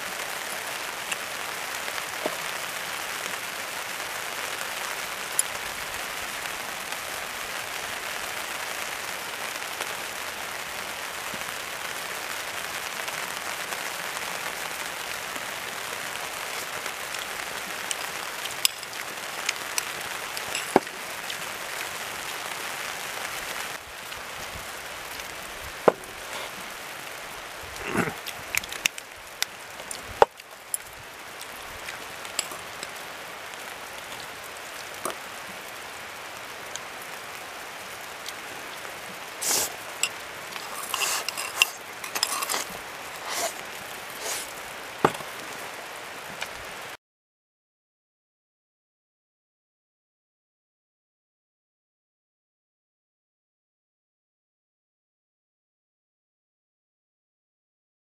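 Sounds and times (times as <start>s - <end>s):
steady rain hiss: 0.0s - 47.0s
tableware clicking and knocking: 40.6s - 42.7s.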